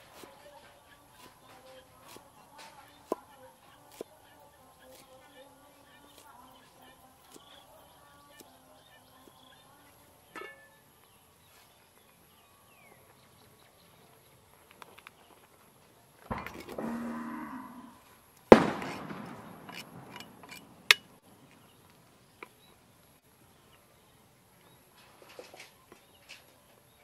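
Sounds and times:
ladle clattering on metal pot: 10.3 - 10.8
cow lowing: 16.5 - 18.0.

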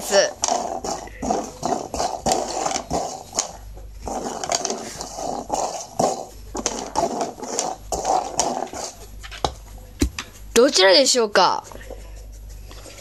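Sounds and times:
plastic cups scraping on floor: 0.0 - 10.4.

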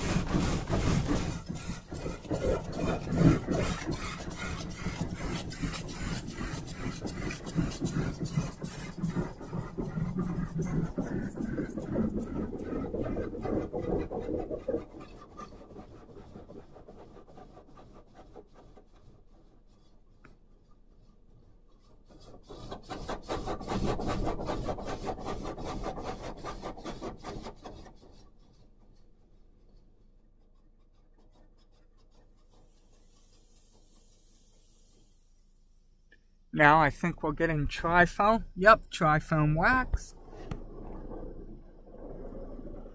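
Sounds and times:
carwash spray jets pelting car: 0.0 - 19.7, 25.9 - 35.7.

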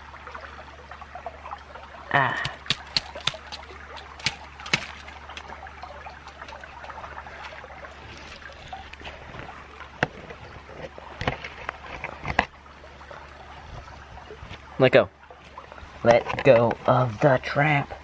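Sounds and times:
creek trickling: 0.0 - 18.0
wire trap clicking and rattling: 2.4 - 5.5.

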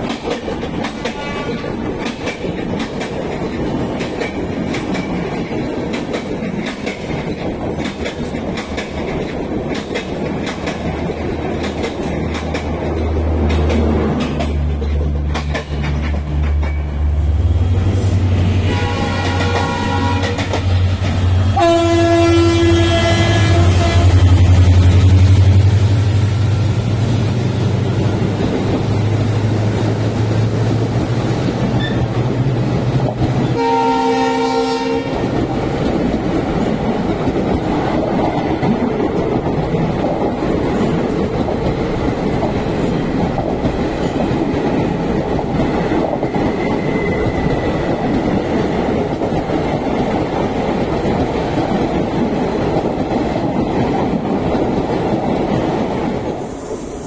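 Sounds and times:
wheels clattering on rail: 0.0 - 17.1, 18.7 - 56.4
electric locomotive hum: 0.0 - 57.0
train horn blowing: 1.1 - 1.8, 18.4 - 24.7, 33.5 - 35.4.

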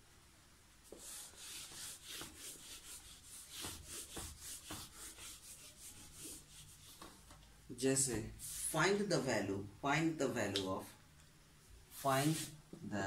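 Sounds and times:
eraser rubbing whiteboard: 0.9 - 7.3, 8.3 - 8.9, 11.9 - 12.6.

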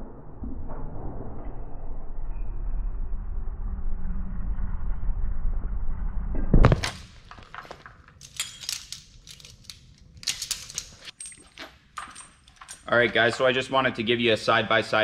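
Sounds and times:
low rumbling: 0.0 - 6.7
carabiners clinking: 6.9 - 13.7.

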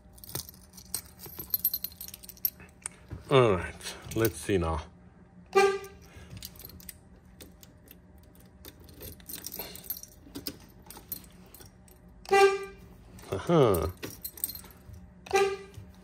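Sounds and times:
keys jingling and clicking: 0.0 - 2.9, 6.0 - 12.2, 13.2 - 16.0
car horn beeps: 5.5 - 6.1, 12.2 - 13.0, 15.2 - 16.0.

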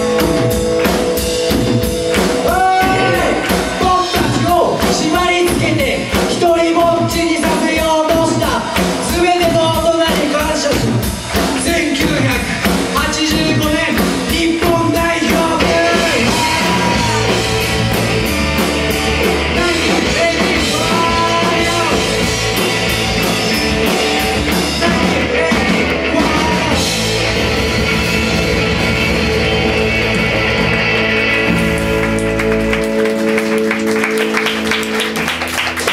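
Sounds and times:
punk rock band playing: 0.0 - 35.9
person singing: 2.4 - 17.8, 19.2 - 22.6, 23.8 - 27.2.

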